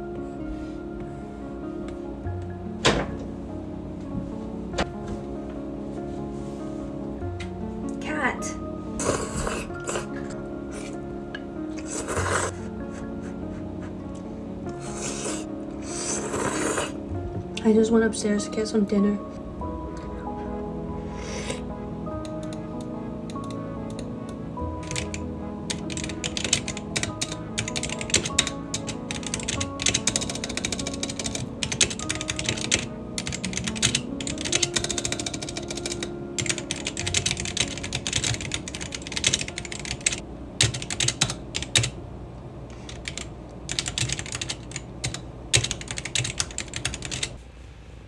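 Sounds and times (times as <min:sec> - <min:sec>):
background music: 0:00.0 - 0:47.4
fast typing on keyboard: 0:24.8 - 0:42.0, 0:42.8 - 0:47.4.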